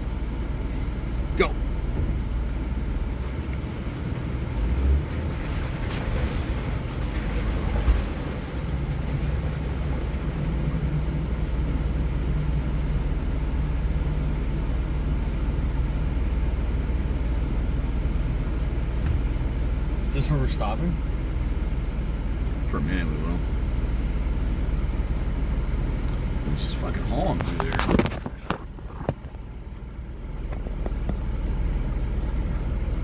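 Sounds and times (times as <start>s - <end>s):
vehicle engine running: 0.0s - 33.0s
water sloshing: 3.2s - 12.0s.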